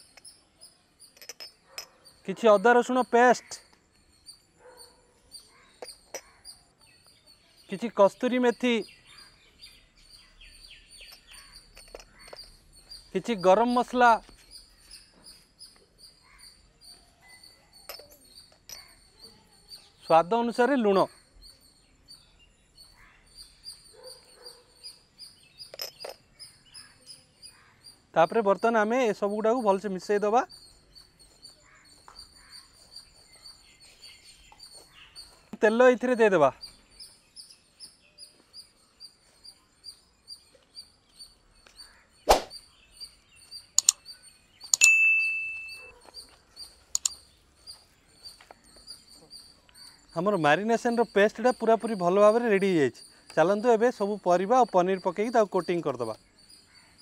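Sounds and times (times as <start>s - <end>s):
small birds chirping: 0.0s - 57.0s
sharp clicks: 43.8s - 45.0s, 46.9s - 47.2s.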